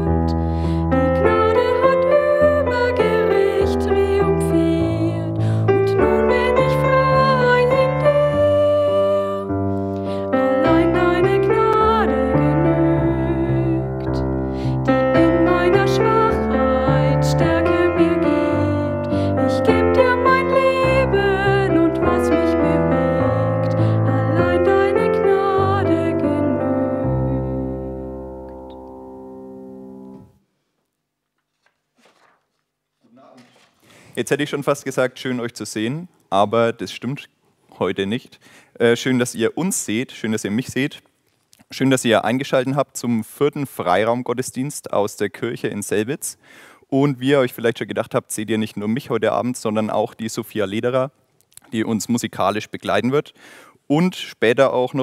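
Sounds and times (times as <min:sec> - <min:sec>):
woman singing: 0:00.0 - 0:14.3, 0:14.9 - 0:28.1
piano chords: 0:00.0 - 0:30.4.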